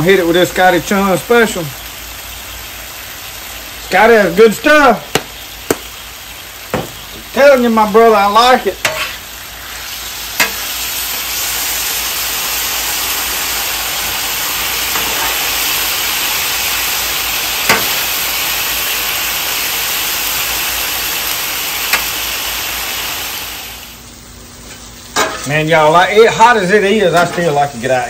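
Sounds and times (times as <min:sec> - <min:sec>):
steak and vegetables sizzling on griddle: 0:00.0 - 0:28.0
metal spatula clicking on griddle: 0:17.7 - 0:18.0.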